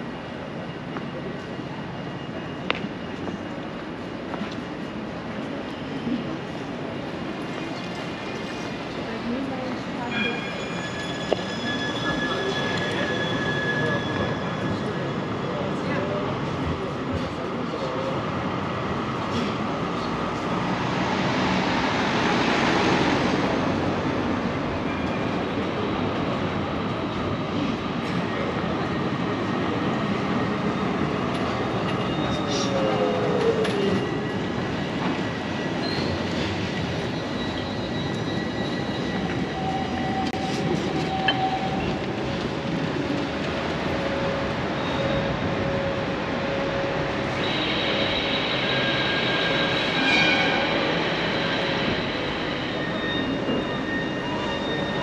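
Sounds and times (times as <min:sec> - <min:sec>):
train running on track: 0:00.0 - 0:55.0
high steel-wheel squeal: 0:10.0 - 0:16.2, 0:31.8 - 0:42.0, 0:44.0 - 0:55.0.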